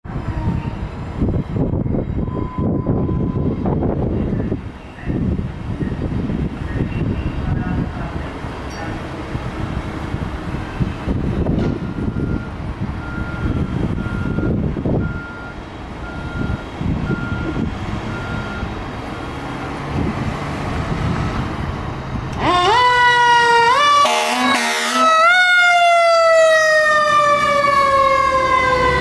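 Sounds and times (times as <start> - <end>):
diesel engine rumbling: 0.0 - 29.0
siren wailing: 0.1 - 0.9, 22.4 - 29.0
air horn blast: 24.0 - 25.2.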